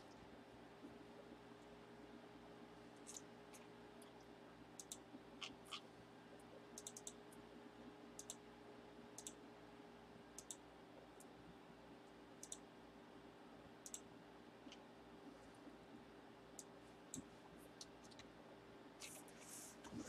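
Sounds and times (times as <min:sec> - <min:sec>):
low steady hum: 0:00.0 - 0:20.0
mouse and keyboard clicks: 0:06.8 - 0:07.2, 0:08.2 - 0:08.4, 0:09.2 - 0:09.4.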